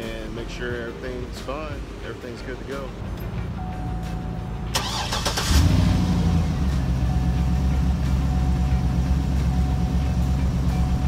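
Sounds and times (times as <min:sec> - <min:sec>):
car engine idling: 0:02.7 - 0:11.0.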